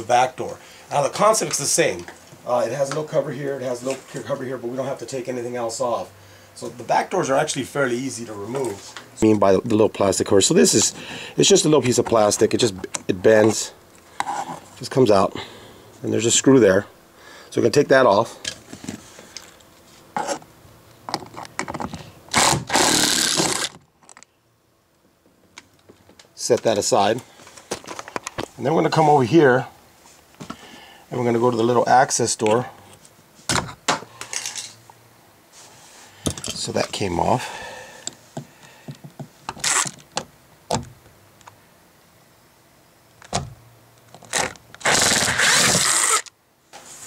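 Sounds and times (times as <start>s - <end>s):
loud rasping noise: 22.3s - 23.8s, 44.3s - 46.3s
power screwdriver running: 22.3s - 23.8s, 44.8s - 46.3s.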